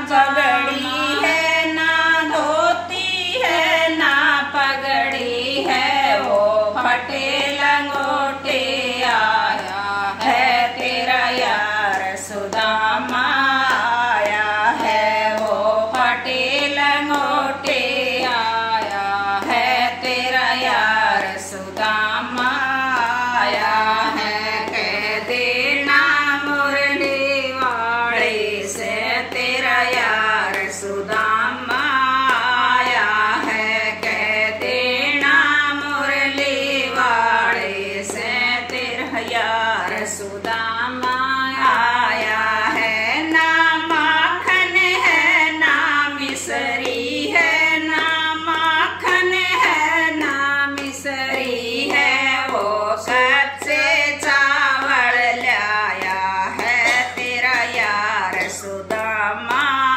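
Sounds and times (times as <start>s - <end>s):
women singing devotional song: 0.0s - 59.9s.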